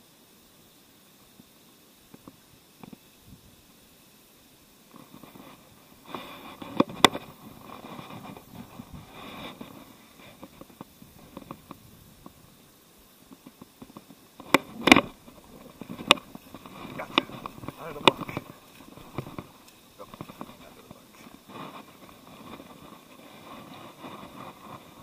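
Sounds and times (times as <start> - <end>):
fishing reel handling rustling: 14.4 - 25.0.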